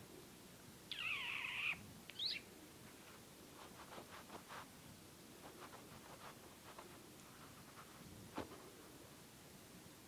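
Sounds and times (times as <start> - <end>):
high-pitched chirp: 0.9 - 2.5
kittens scratching on carpet: 3.0 - 4.8, 5.4 - 8.7.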